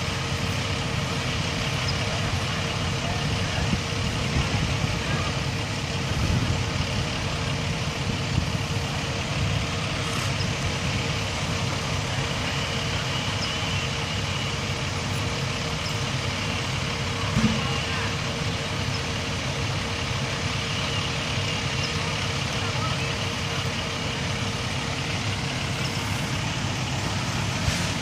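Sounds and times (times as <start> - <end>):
diesel engines rumbling: 0.0 - 28.0.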